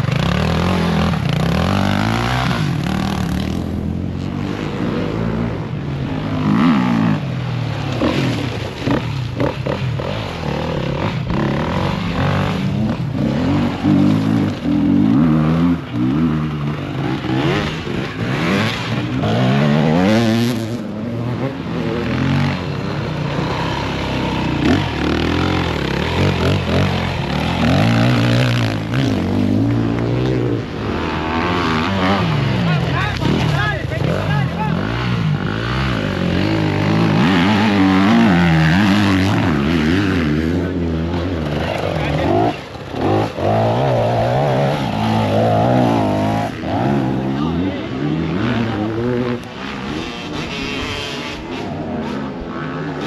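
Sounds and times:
dirt bike engines revving: 0.0 - 53.0.

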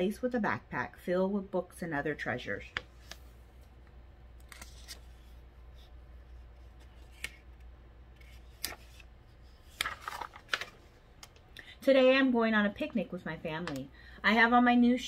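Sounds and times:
room tone hum: 0.0 - 15.0
book pages rustling: 4.4 - 11.5.

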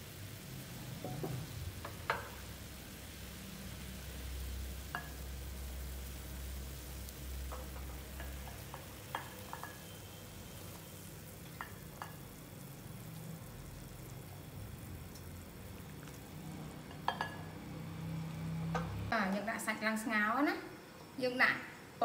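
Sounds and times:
water boiling in a pot: 0.0 - 19.7.

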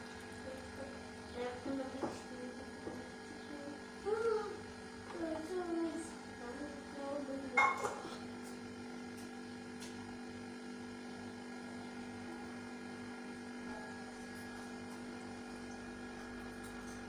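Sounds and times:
steady electrical hum: 0.0 - 17.0.

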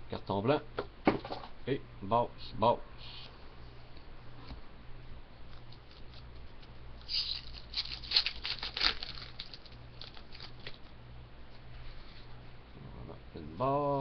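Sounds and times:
foil wrapper crinkling: 5.7 - 10.9.

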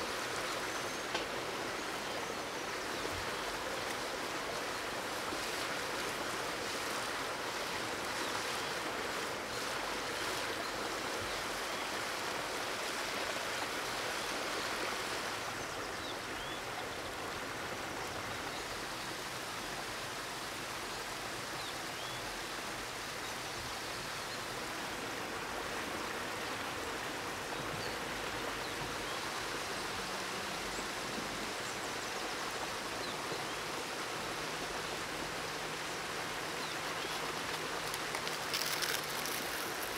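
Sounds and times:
eggs and bacon sizzling: 37.9 - 39.9.

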